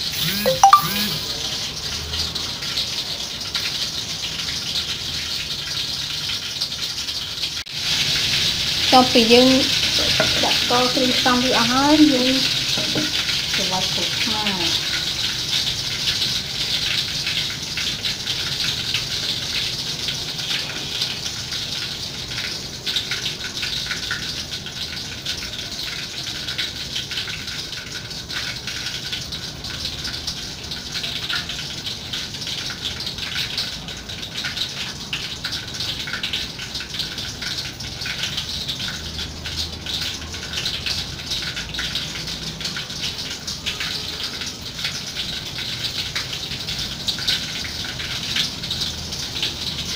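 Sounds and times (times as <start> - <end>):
pestle knocking in a mortar: 12.8 - 13.2.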